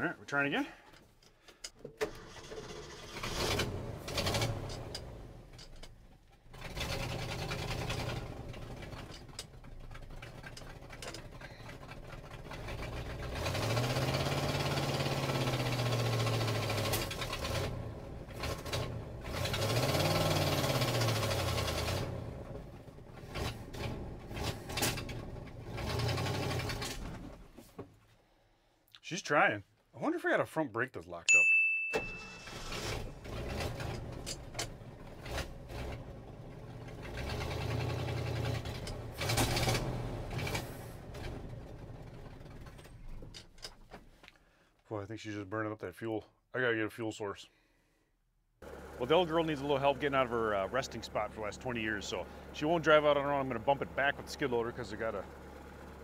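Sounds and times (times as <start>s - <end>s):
truck engine sputtering and revving: 2.2s - 27.4s, 32.4s - 43.4s, 48.6s - 56.0s.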